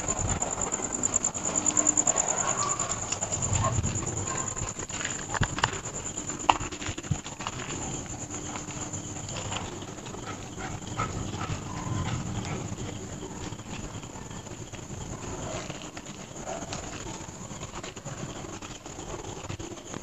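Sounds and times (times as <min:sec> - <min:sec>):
dog barking: 0:01.8 - 0:04.8, 0:10.2 - 0:12.6.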